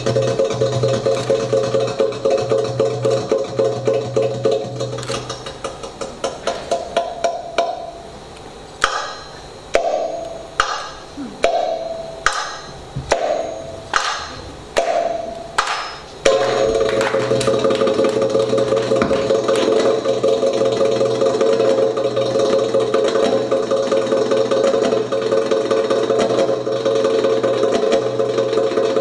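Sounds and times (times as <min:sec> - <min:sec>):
hand drums playing: 0:09.8 - 0:15.7.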